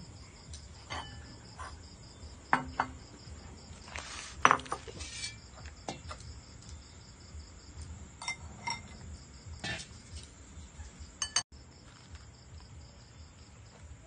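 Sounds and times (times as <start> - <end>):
crickets chirping: 0.0 - 14.0
metal and crockery clinking: 0.5 - 1.8, 7.8 - 10.2, 11.2 - 11.4.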